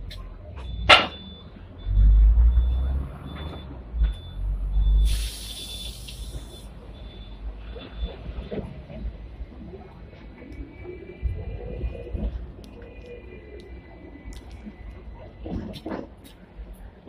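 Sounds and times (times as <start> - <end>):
tram rumbling: 0.0 - 17.0
compressed air hiss: 5.0 - 6.7.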